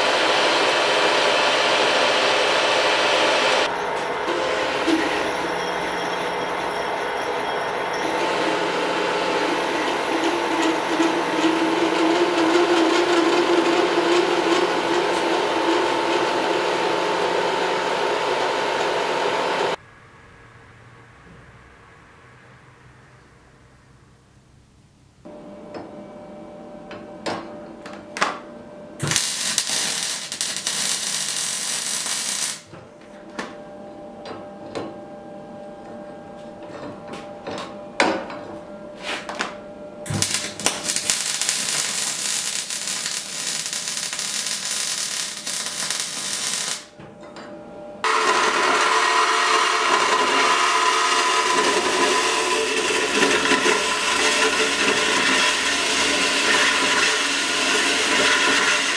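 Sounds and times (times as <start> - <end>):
power saw cutting steel: 0.0 - 19.8, 29.0 - 32.8, 40.1 - 47.0, 48.0 - 58.9
gas torch hissing: 29.0 - 32.7, 40.1 - 46.9
steel being handled: 38.3 - 47.5.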